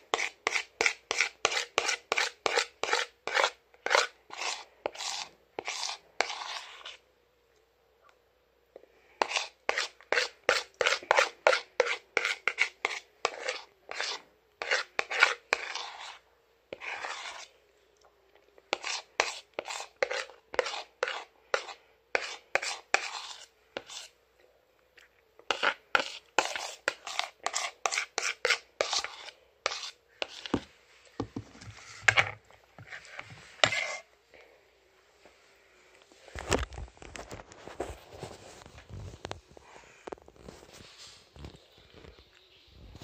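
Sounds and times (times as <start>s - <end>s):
spoon scraping a bowl: 0.0s - 7.0s, 9.2s - 17.6s, 18.6s - 24.2s, 25.0s - 34.1s.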